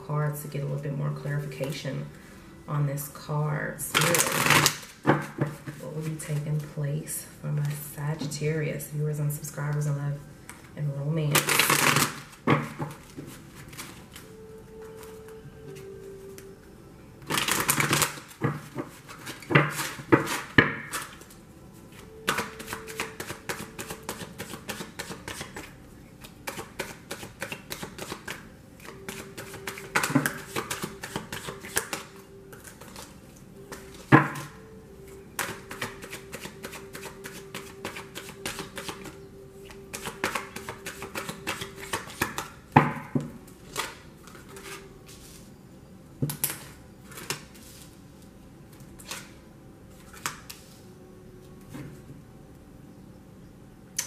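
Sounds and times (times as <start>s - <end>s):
cards being shuffled: 17.3s - 33.1s, 35.4s - 42.6s.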